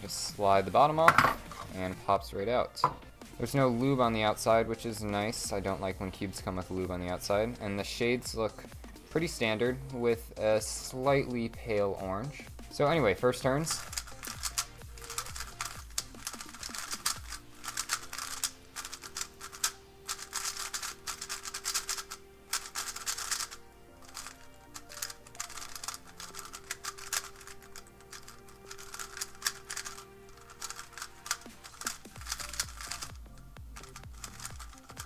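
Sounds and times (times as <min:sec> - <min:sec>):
background music: 0:00.0 - 0:35.0
puzzle cube clicking: 0:13.6 - 0:35.0.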